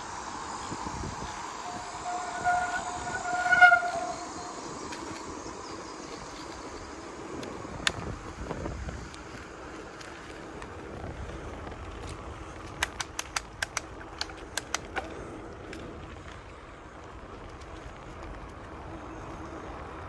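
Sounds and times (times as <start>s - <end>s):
road rumble: 0.0s - 20.0s
wind on microphone: 0.0s - 20.0s
sharp clicks: 12.6s - 15.8s.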